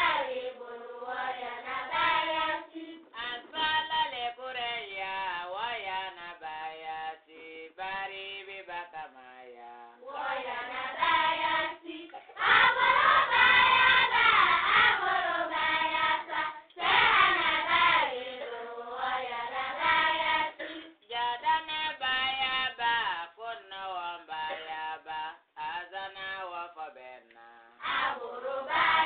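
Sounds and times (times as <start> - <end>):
group chanting: 0.0 - 4.2, 10.0 - 21.7, 27.8 - 29.0.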